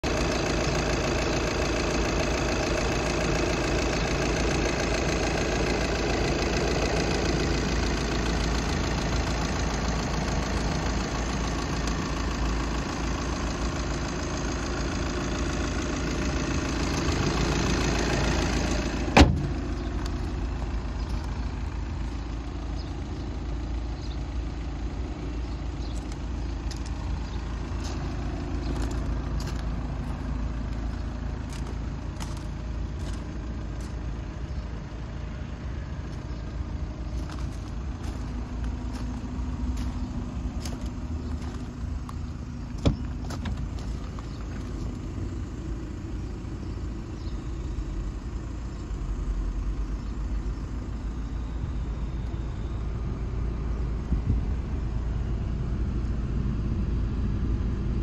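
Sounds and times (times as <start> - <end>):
diesel engine idling: 0.0 - 58.0
door slam: 19.2 - 19.5.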